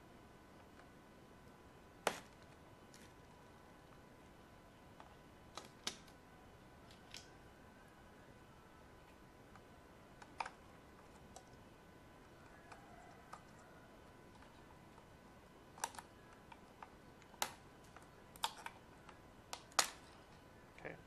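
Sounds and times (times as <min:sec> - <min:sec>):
plastic parts clicking: 0:15.7 - 0:20.3.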